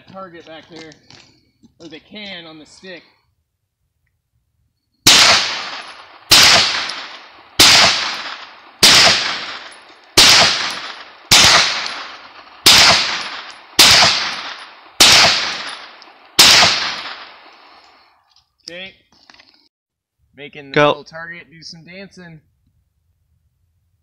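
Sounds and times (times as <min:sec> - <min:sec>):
rifle gunshots echoing: 0:05.0 - 0:17.8.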